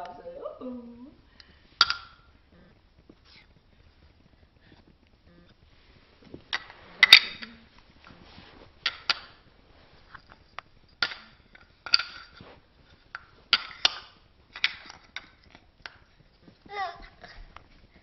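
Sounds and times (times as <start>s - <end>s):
wooden toy pieces knocking: 1.8s - 2.3s, 11.0s - 12.3s, 13.1s - 16.0s.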